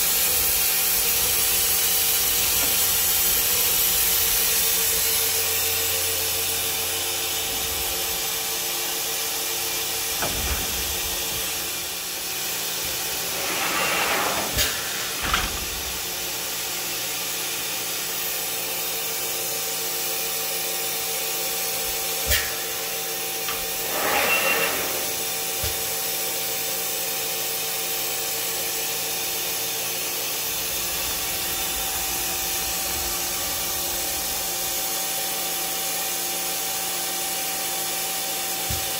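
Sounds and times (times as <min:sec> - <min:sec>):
machine hiss and hum: 0:00.0 - 0:38.9
rushing machine noise: 0:10.2 - 0:16.4.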